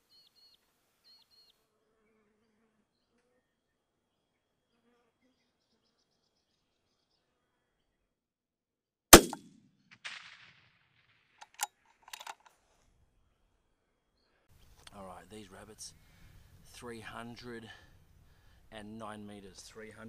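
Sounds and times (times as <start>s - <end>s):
rifle shot: 9.1s - 11.7s
sharp clicks: 9.2s - 9.4s, 11.4s - 12.5s.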